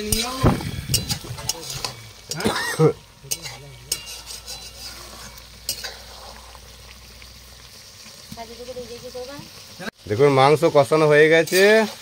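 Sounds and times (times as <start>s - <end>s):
spatula clinking on pan: 0.0s - 2.6s, 3.3s - 4.9s, 5.7s - 6.0s
spatula scraping pan: 0.0s - 7.0s, 11.3s - 12.0s
quiet sizzle: 0.0s - 12.0s.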